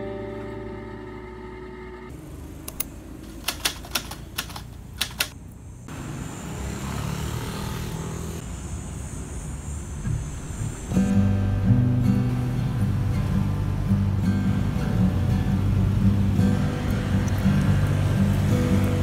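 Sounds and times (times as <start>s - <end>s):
city street traffic rumble: 0.0s - 19.0s
typewriter keys clacking: 3.2s - 5.4s.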